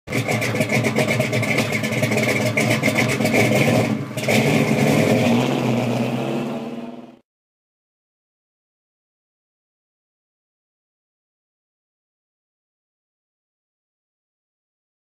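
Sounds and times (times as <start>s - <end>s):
car engine accelerating: 0.1s - 7.2s.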